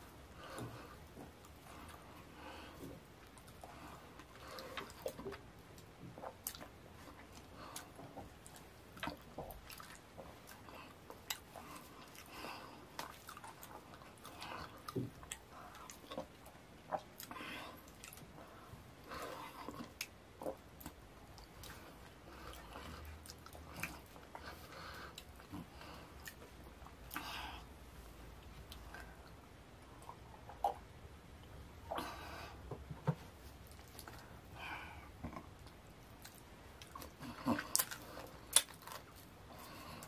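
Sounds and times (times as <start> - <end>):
person chewing and lip-smacking: 2.8 - 18.5, 19.2 - 27.3, 35.2 - 40.0.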